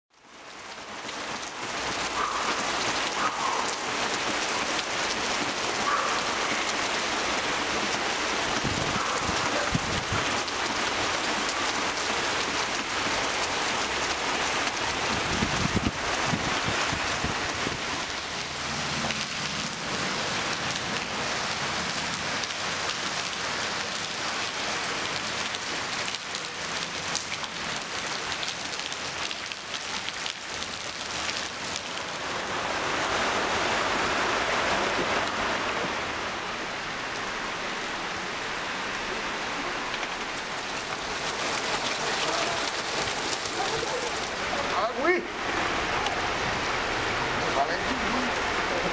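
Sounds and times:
heavy rain on standing water: 0.1 - 48.9
car driving through water: 17.5 - 24.3, 39.8 - 48.9.

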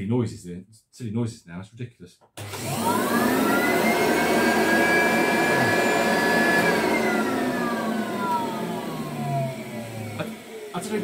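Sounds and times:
vacuum cleaner motor whine: 2.4 - 11.0.

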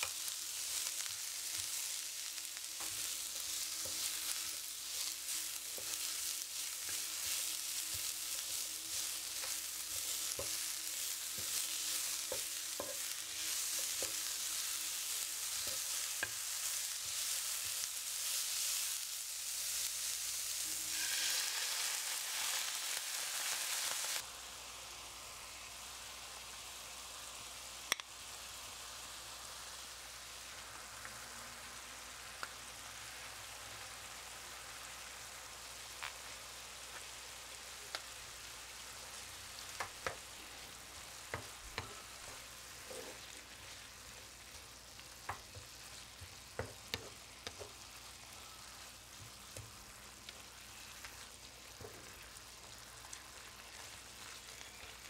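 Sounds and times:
food sizzling in frying pan: 0.0 - 55.0
spatula scraping pan: 20.6 - 23.7, 41.4 - 43.8.

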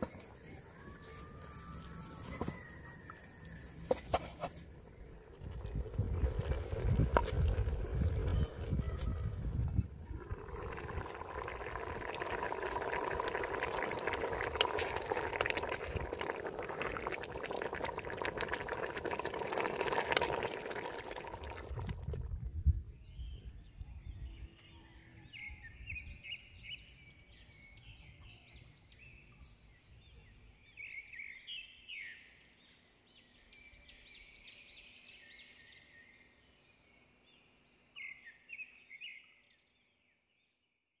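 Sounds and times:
stew boiling hard: 2.3 - 22.5
small birds chirping: 4.8 - 21.6.

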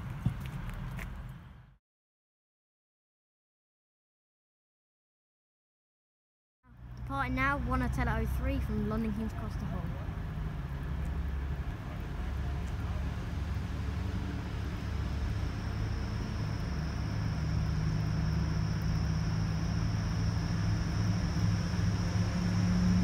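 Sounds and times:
faint high whine: 6.7 - 23.0
train engine drone: 6.7 - 23.0.

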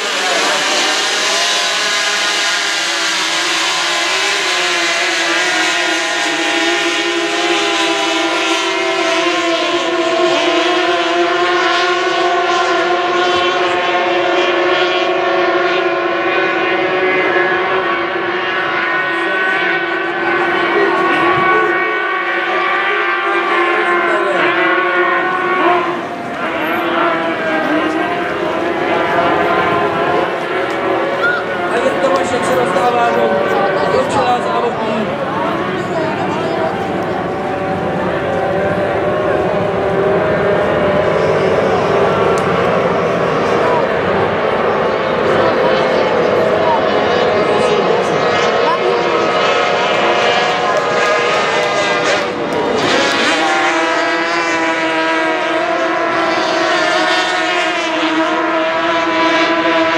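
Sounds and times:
outboard engines whining: 0.0 - 59.9.

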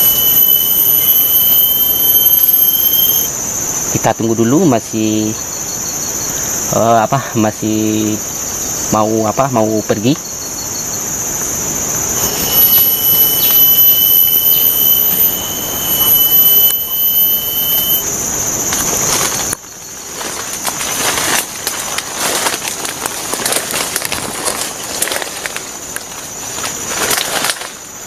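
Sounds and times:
thin steady whistling tone: 0.0 - 22.6
insects droning high-pitched: 0.0 - 28.0
leaves and twigs rustling: 18.0 - 28.0.

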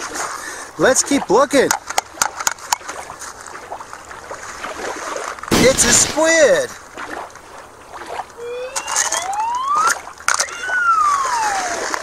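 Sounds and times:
water splashes: 0.0 - 12.0
slide whistle gliding up and down: 8.4 - 12.0.

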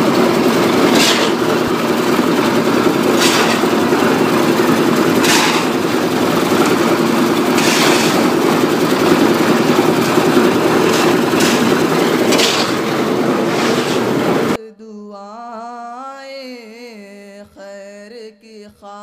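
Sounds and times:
concrete mixer running: 0.0 - 14.6
shovel scraping wet concrete: 0.1 - 14.6.

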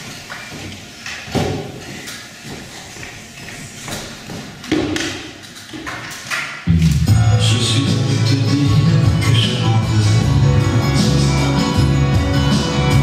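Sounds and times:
footsteps thudding on a stage: 0.0 - 5.4.

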